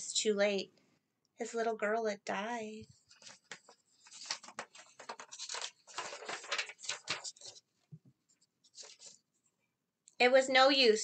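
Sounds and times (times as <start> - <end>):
paper rustling: 2.9 - 9.3.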